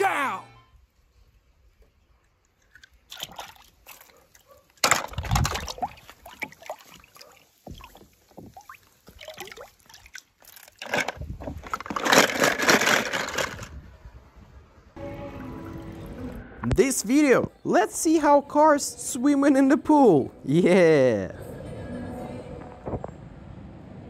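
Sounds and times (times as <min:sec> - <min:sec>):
water splashing and sloshing: 0:02.4 - 0:12.4.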